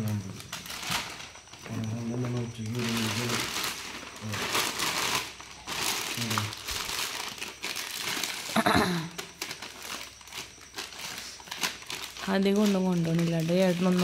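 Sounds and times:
plastic bag crinkling: 0:00.4 - 0:14.0.

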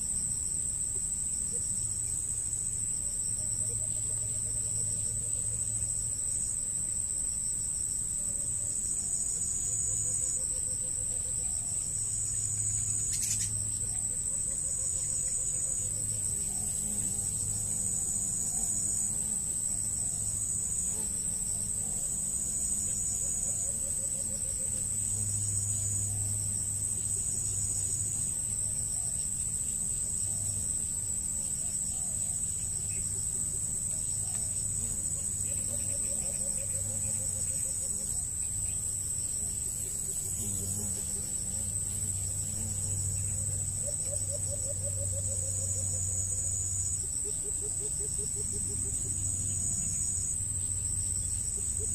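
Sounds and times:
insects chirring: 0:00.0 - 0:51.9
pulsing insect trill: 0:00.0 - 0:51.9.

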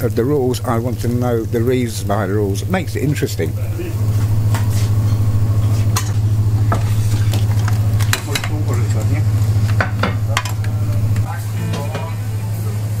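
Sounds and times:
kitchen equipment hum: 0:00.0 - 0:13.0
metal utensil scraping a wok: 0:04.1 - 0:09.0.

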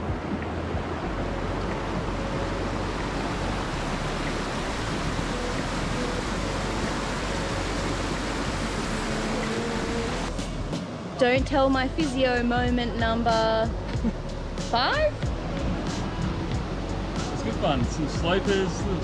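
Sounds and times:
creek rushing over rocks: 0:00.0 - 0:10.4.

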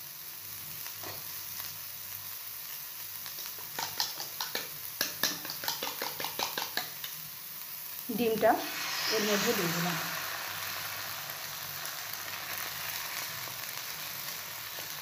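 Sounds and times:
vegetables sizzling in oil: 0:00.0 - 0:15.0
sharp crackles and pops: 0:03.1 - 0:08.5, 0:09.1 - 0:15.0.

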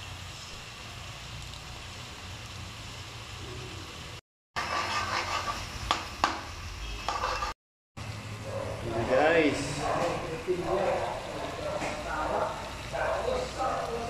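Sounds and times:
metal spatula scraping wok: 0:04.6 - 0:06.2, 0:06.8 - 0:07.6
spatula knocking against pan: 0:05.9 - 0:06.5.

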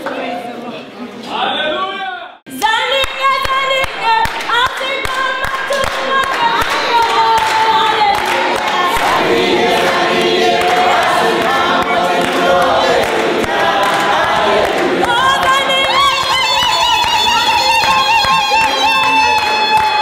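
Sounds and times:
choir singing: 0:05.1 - 0:20.0.

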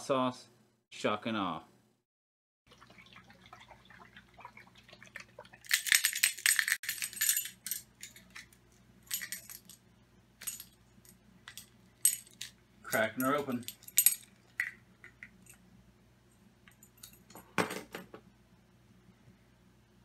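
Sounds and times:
bottle cap clicking and rattling: 0:05.7 - 0:08.5, 0:09.1 - 0:09.8, 0:11.5 - 0:15.5.

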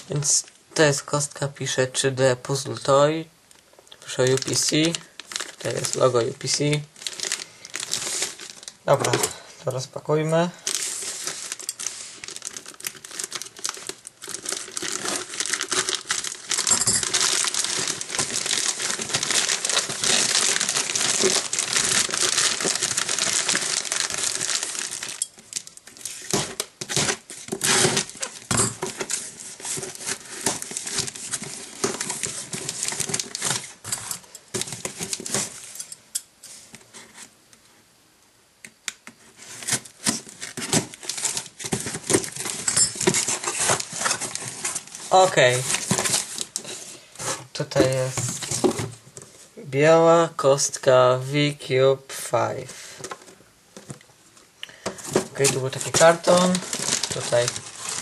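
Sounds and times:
plastic bag crinkling and tearing: 0:04.0 - 0:09.4, 0:10.4 - 0:35.8, 0:39.4 - 0:49.0, 0:54.8 - 0:58.0.

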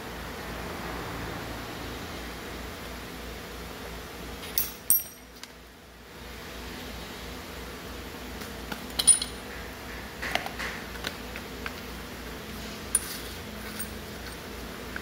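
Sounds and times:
metal parts clinking on cardboard: 0:08.9 - 0:09.4.

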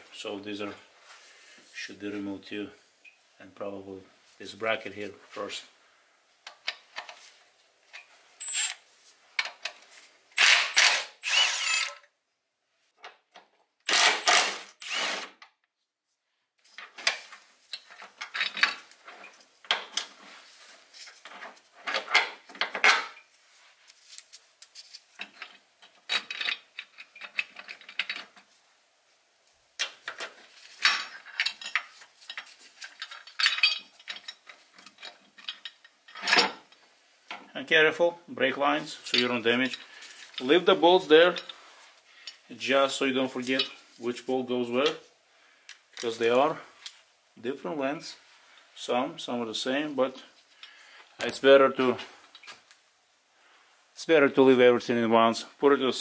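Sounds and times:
hand tools and metal parts clinking: 0:06.4 - 0:12.1, 0:16.6 - 0:23.3, 0:23.9 - 0:28.6, 0:29.8 - 0:37.5, 0:39.0 - 0:42.5, 0:43.2 - 0:47.1, 0:50.0 - 0:52.7
cordless power tool running: 0:10.4 - 0:12.0, 0:13.9 - 0:15.3.

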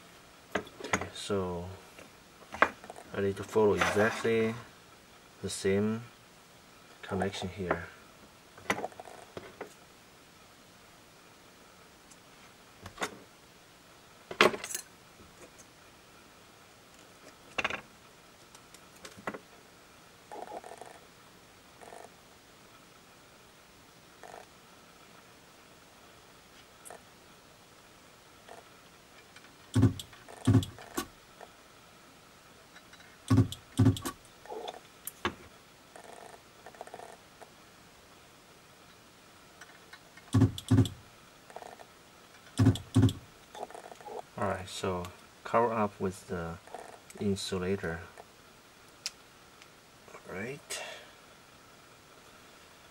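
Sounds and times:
battery cells clicking and clinking: 0:29.7 - 0:31.1, 0:33.3 - 0:34.6, 0:40.3 - 0:41.8, 0:42.6 - 0:44.2.

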